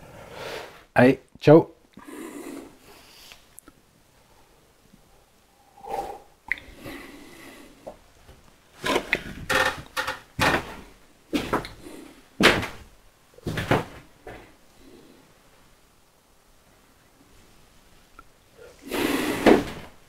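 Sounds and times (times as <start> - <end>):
knocks and thumps: 8.8 - 10.8, 12.4 - 14.5.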